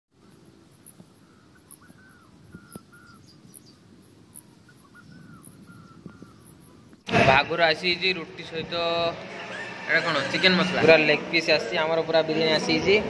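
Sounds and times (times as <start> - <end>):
bird calls: 0.2 - 7.1
insect chirping high pulses: 0.2 - 7.1.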